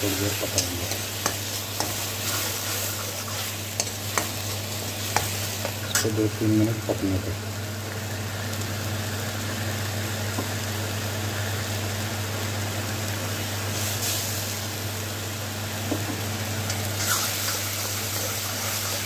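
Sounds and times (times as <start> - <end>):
paste sizzling in oil: 0.0 - 9.5, 13.4 - 14.8, 16.0 - 19.0.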